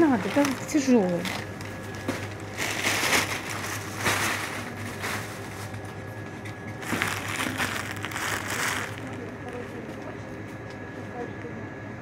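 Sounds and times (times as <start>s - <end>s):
plastic bags rustling: 0.0s - 5.8s, 6.8s - 9.7s.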